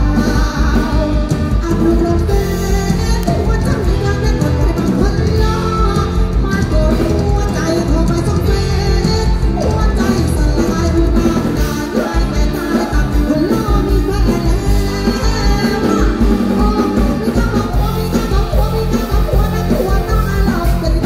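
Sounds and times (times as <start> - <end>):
live band music: 0.0 - 21.0
woman singing into a microphone: 0.0 - 21.0.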